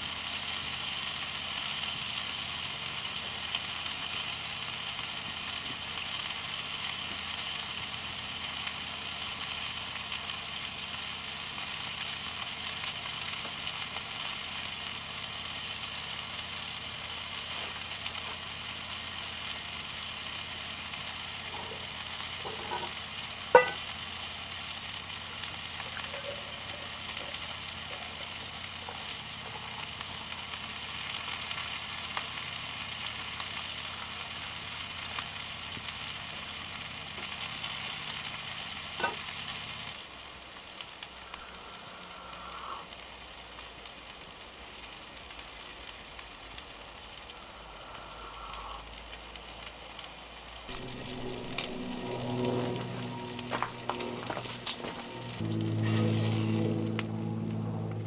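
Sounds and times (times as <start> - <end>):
food sizzling in skillet: 0.0 - 57.9
coffee pouring: 21.6 - 23.9, 25.7 - 29.8, 50.7 - 56.0
glass clinking against metal mug: 23.6 - 23.8.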